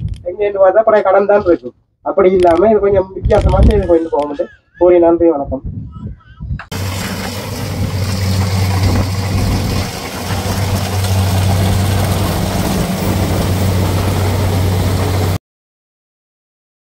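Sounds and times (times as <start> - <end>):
combine harvester engine drone: 6.7 - 15.4.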